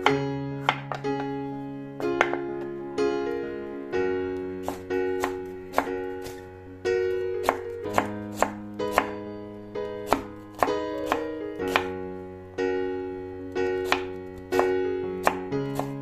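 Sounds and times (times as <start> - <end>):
soft piano music: 0.0 - 16.0
knife chopping on wooden board: 4.6 - 6.4, 7.4 - 9.2, 10.1 - 11.9, 13.8 - 16.0.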